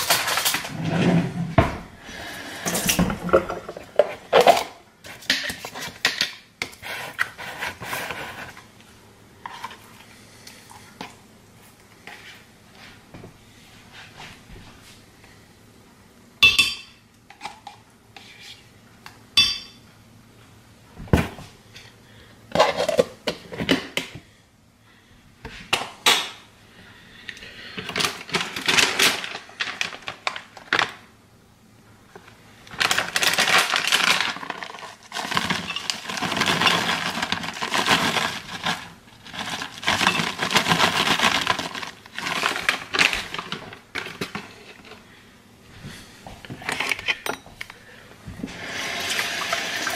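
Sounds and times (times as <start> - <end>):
spoon scraping plastic tub: 6.6 - 8.7
spoon clinking on glass: 16.4 - 17.0, 19.4 - 19.8
plastic bag crinkling: 28.1 - 31.0, 32.6 - 45.0.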